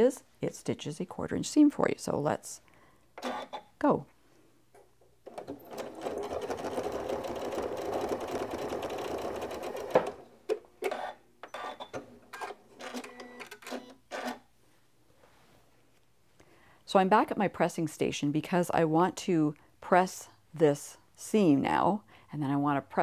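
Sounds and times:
sewing machine stitching: 0:05.2 - 0:10.2.

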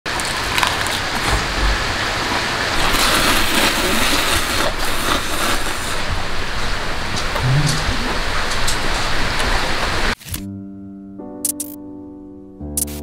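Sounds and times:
steady hiss: 0:00.9 - 0:10.2
man slurping noodles: 0:02.8 - 0:06.1.

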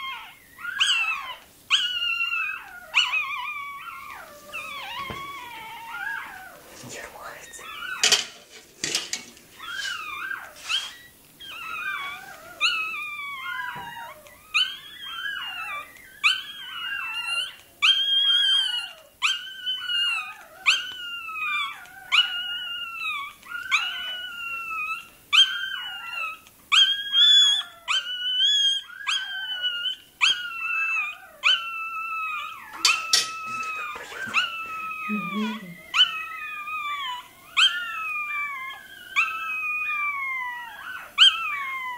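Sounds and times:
puppy squealing cries: 0:00.0 - 0:06.6, 0:09.6 - 0:41.9.

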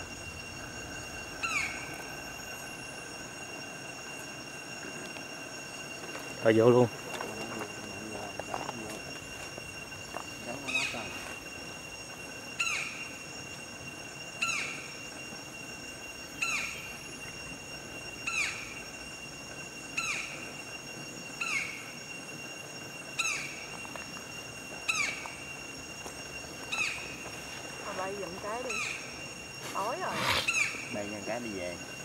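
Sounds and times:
high-pitched ringing: 0:00.0 - 0:32.0
woodpecker calling: 0:01.4 - 0:02.1, 0:12.6 - 0:13.2, 0:14.4 - 0:14.9, 0:16.4 - 0:16.9, 0:18.2 - 0:18.8, 0:19.9 - 0:20.5, 0:21.4 - 0:21.9, 0:23.2 - 0:23.6, 0:26.7 - 0:27.2, 0:27.9 - 0:31.0.

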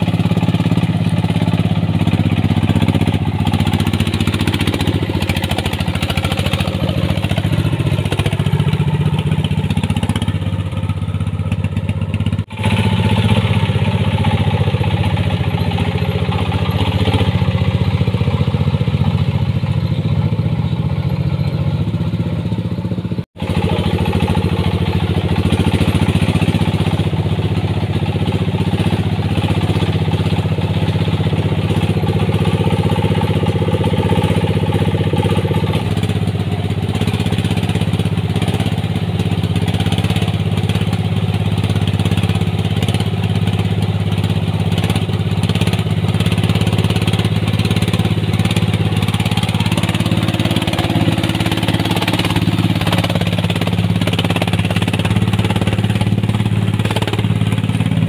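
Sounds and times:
diesel engine clattering: 0:00.0 - 0:58.0.

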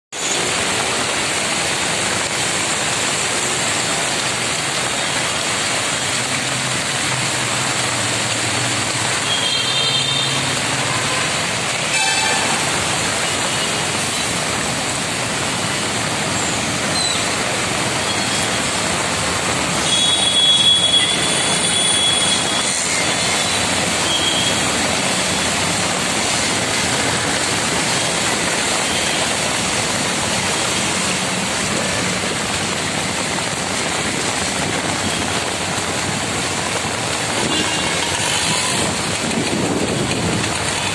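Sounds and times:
heavy rain pouring: 0:00.1 - 0:40.9
traffic driving through water: 0:00.2 - 0:40.9
vehicle horns: 0:09.2 - 0:13.9, 0:19.8 - 0:25.5, 0:37.4 - 0:39.0.

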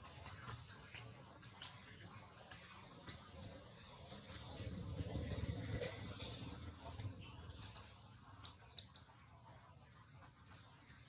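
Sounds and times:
soft ticks: 0:08.4 - 0:09.6.

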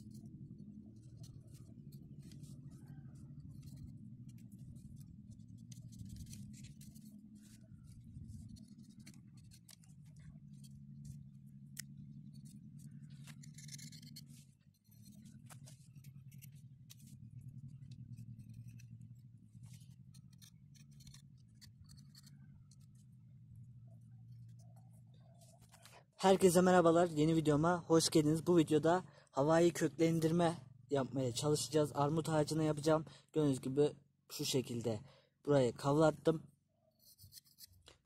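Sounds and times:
low hum: 0:00.0 - 0:26.6
knife scraping bark: 0:11.8 - 0:17.2, 0:18.0 - 0:23.0, 0:36.9 - 0:37.9.

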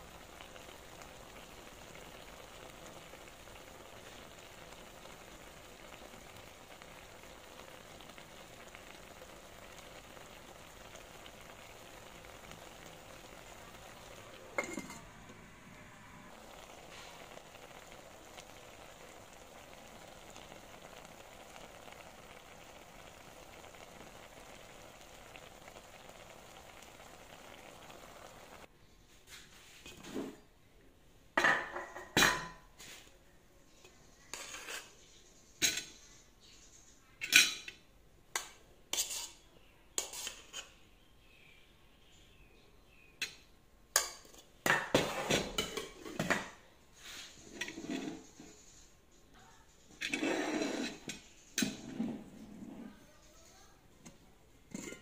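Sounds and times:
steamer pot hissing: 0:00.0 - 0:28.7, 0:44.8 - 0:49.0, 0:49.8 - 0:52.9
metal spoon scraping metal pot: 0:14.6 - 0:15.1, 0:34.3 - 0:34.9, 0:38.9 - 0:39.4, 0:40.0 - 0:40.7, 0:50.0 - 0:52.8.

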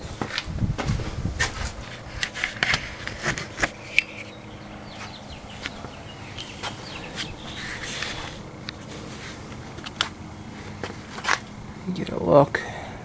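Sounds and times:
camera handling clicks and knocks: 0:02.2 - 0:04.3, 0:09.8 - 0:10.2.

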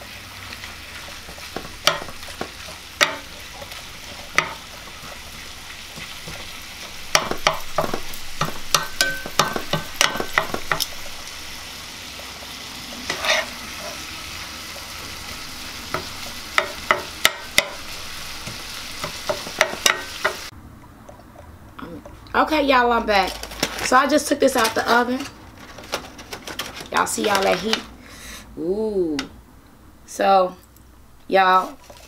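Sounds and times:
meat sizzling in a skillet: 0:00.0 - 0:20.5
fork scraping and clicking on pan: 0:13.1 - 0:14.0.

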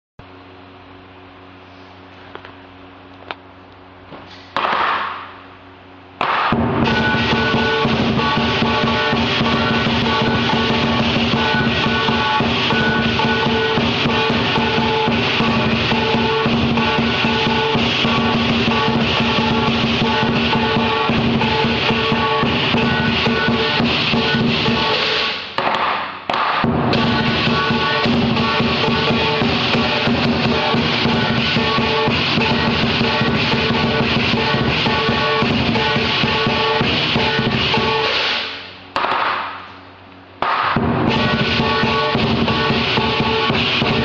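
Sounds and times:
drum beaten fast: 0:06.2 - 0:38.6, 0:40.4 - 0:44.0
loud crash: 0:06.2 - 0:39.6, 0:40.4 - 0:44.0
clashing cymbals: 0:06.2 - 0:39.8, 0:40.4 - 0:44.0
ringing gong: 0:06.5 - 0:25.4, 0:26.6 - 0:38.3, 0:40.8 - 0:44.0.

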